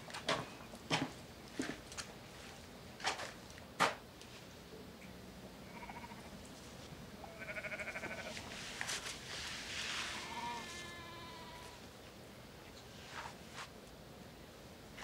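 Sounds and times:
sheep or goat bleating: 5.7 - 6.3, 7.2 - 8.4, 10.1 - 11.8.

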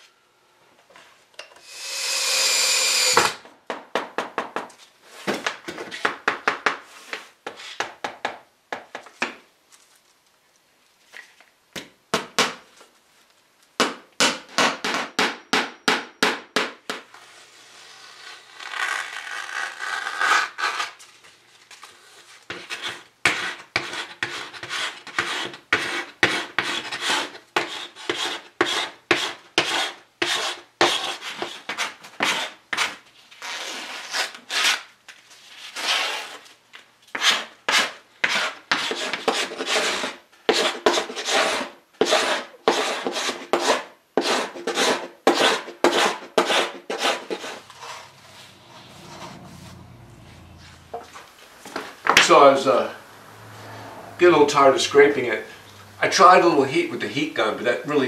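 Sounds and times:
scraper rasping on wooden slats: 1.6 - 3.4, 37.1 - 49.8.

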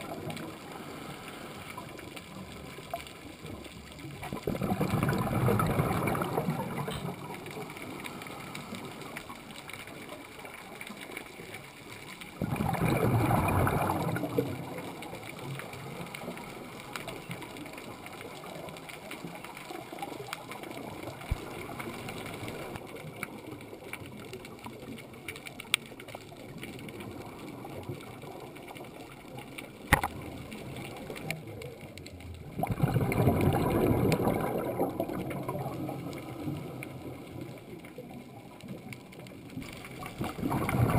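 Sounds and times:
underwater hiss: 0.6 - 2.0
bubbling exhaled breath: 4.2 - 9.5, 12.4 - 15.2, 32.4 - 37.8, 39.9 - 40.9.

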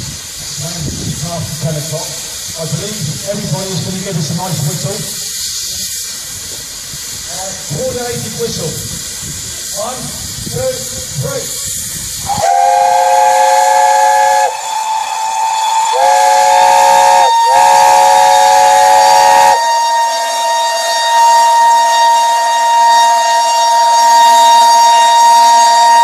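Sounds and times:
steam hissing: 0.0 - 26.0
single-note steam whistle: 12.2 - 26.0.

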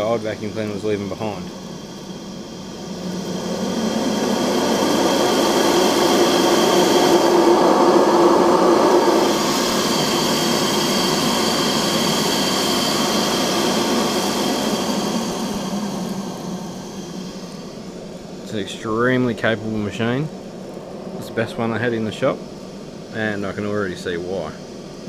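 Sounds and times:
vacuum cleaner sucking on carpet: 0.1 - 17.8.

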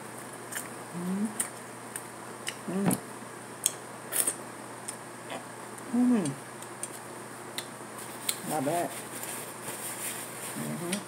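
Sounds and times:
person humming: 0.9 - 1.4, 2.6 - 3.0, 5.9 - 6.4, 10.6 - 11.0.

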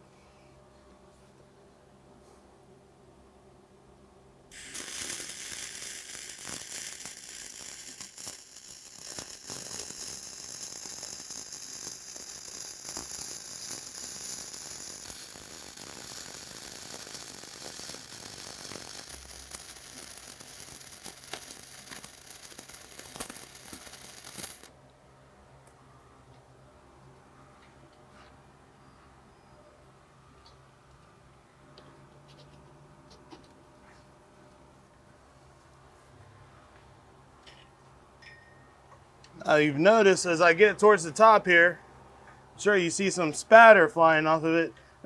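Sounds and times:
sharp spatter pops: 4.5 - 24.7
arc welding crackling sizzle: 4.5 - 24.8.

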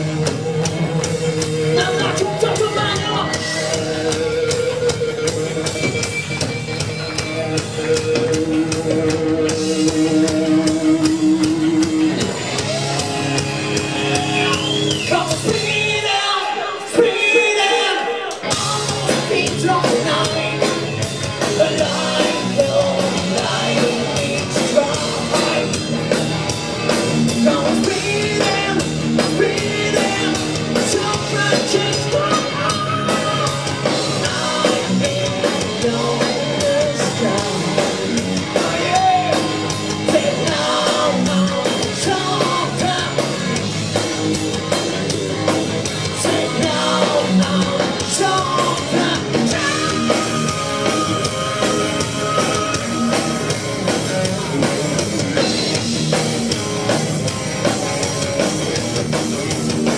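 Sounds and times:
bass guitar: 0.0 - 59.9
drum kit: 0.0 - 59.9
electric guitar: 0.0 - 59.9
person singing: 7.9 - 26.1, 27.3 - 43.4, 46.0 - 54.6.

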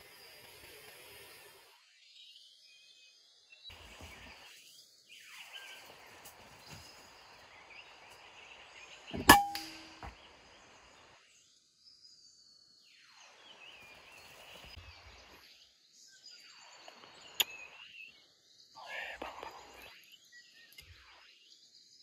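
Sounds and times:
faint bird chirps: 0.0 - 22.0.

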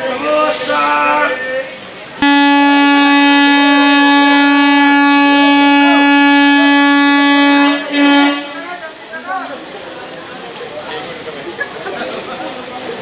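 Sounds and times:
locomotive horn blast: 2.2 - 9.0.

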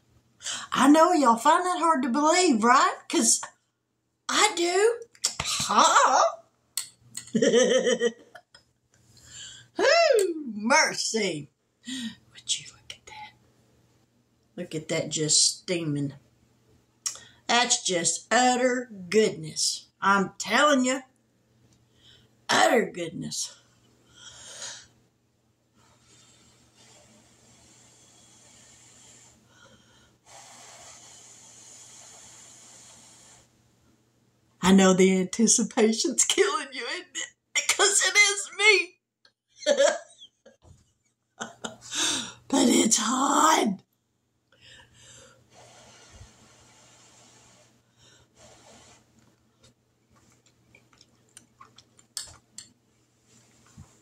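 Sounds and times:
wet chewing clicks: 50.3 - 52.7.

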